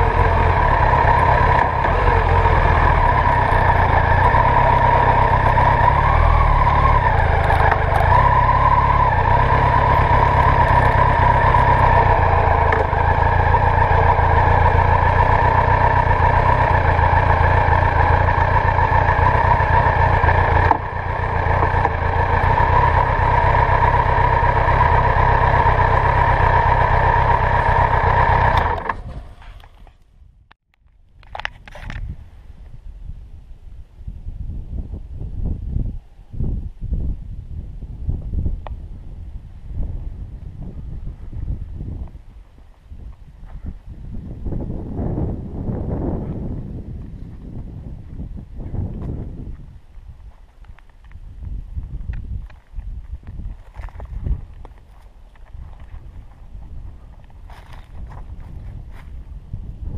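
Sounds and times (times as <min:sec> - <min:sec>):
motorcycle engine idling: 0:00.0 - 0:29.8.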